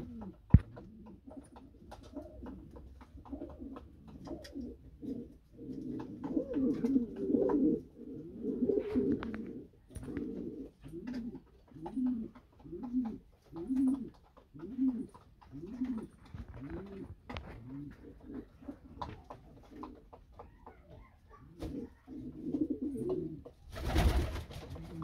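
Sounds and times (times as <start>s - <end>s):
pigeons cooing: 0.0s - 25.0s.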